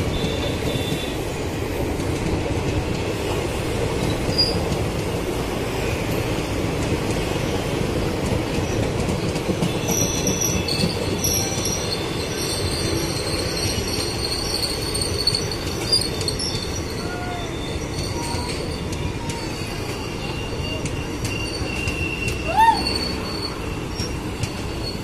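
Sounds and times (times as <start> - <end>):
train wheels rumbling on rails: 0.0 - 25.0
steel wheels squealing: 3.6 - 4.7, 8.5 - 25.0.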